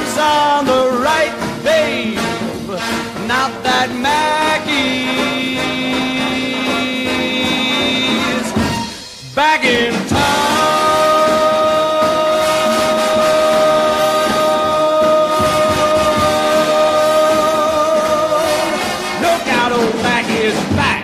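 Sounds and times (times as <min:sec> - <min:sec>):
jingle music with steady beat: 0:00.0 - 0:21.0.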